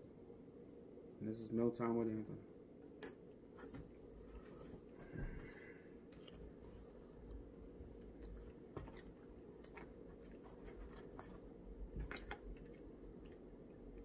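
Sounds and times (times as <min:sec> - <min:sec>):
quiet chewing: 0:06.1 - 0:14.0.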